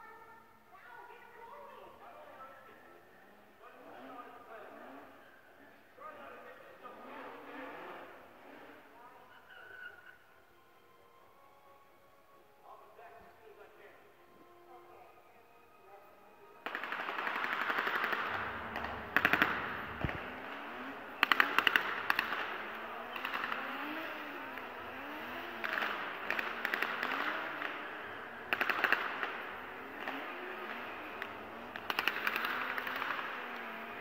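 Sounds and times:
car engines and tyres: 0:00.0 - 0:34.0
machine-gun fire bursts: 0:16.6 - 0:34.0.

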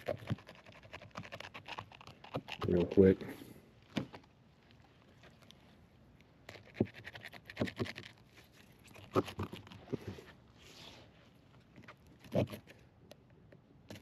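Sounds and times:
knife scraping and crunching fish: 0:00.0 - 0:03.2, 0:06.4 - 0:10.3, 0:12.2 - 0:12.8.

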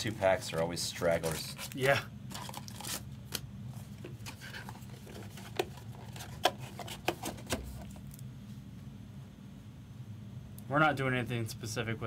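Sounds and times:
card pack wrappers crinkling: 0:00.0 - 0:03.4.

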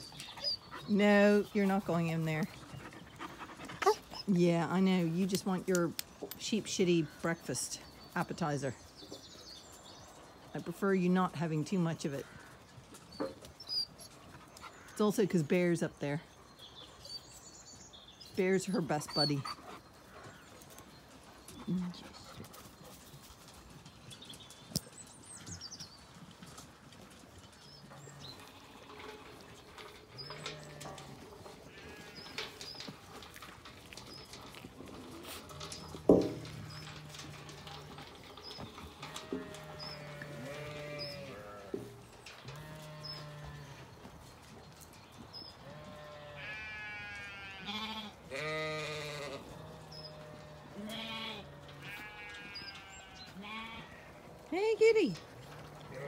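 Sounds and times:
songbirds singing: 0:00.0 - 0:56.0
sheep bleating: 0:45.6 - 0:54.2.

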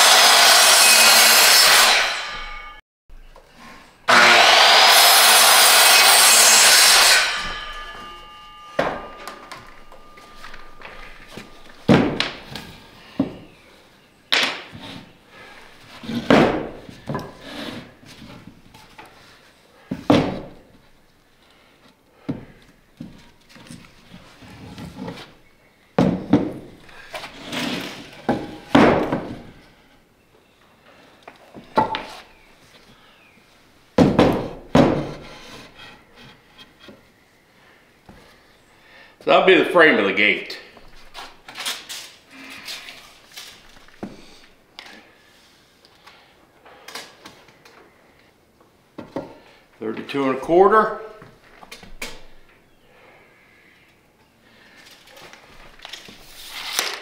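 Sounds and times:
wood scraping: 0:03.5 - 0:13.6, 0:14.4 - 0:20.6, 0:26.0 - 0:29.7, 0:34.2 - 0:37.1, 0:54.7 - 0:57.0
wooden boards thunking: 0:05.2 - 0:13.5, 0:16.0 - 0:17.4, 0:19.9 - 0:20.6, 0:26.0 - 0:26.8, 0:27.7 - 0:29.5, 0:34.0 - 0:35.2.

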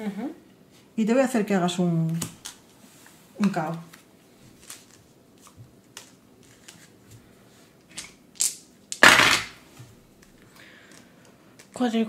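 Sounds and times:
game cards and pieces clicking: 0:10.9 - 0:11.8.

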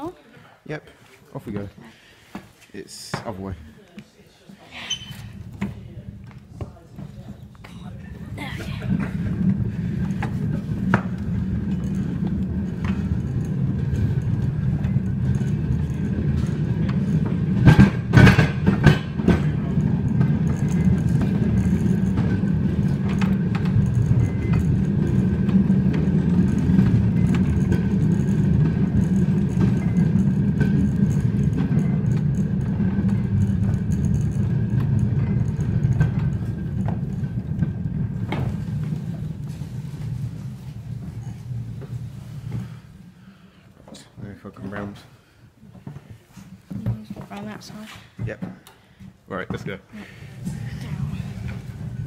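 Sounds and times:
steel wheels rumbling on rails: 0:05.2 - 0:43.3, 0:50.1 - 0:52.0.

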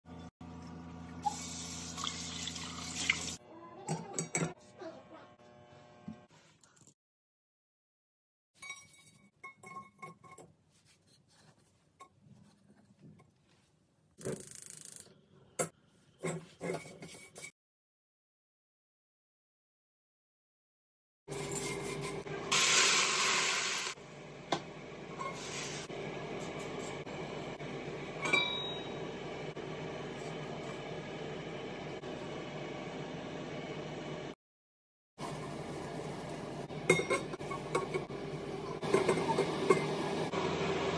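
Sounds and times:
tap water running into sink: 0:01.2 - 0:03.4
liquid hissing in hot wok: 0:22.5 - 0:24.0, 0:25.4 - 0:25.9.

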